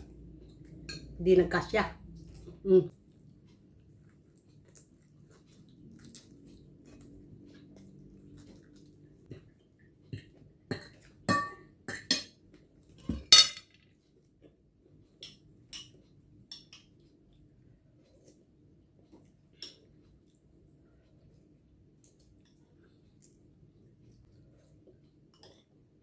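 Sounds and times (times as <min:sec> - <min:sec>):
cutlery clinking on plate: 0:13.1 - 0:13.7.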